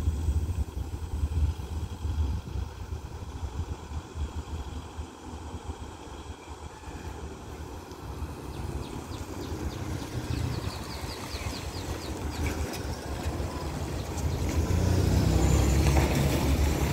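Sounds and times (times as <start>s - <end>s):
low traffic rumble: 0.0s - 16.9s
truck engine passing: 7.1s - 16.9s.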